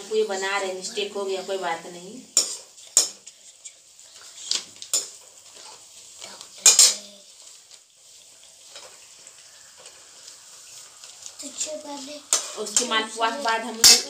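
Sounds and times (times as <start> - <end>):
oil sizzling: 0.0 - 14.0
metal spatula scraping a pan: 1.4 - 3.7, 12.1 - 14.0.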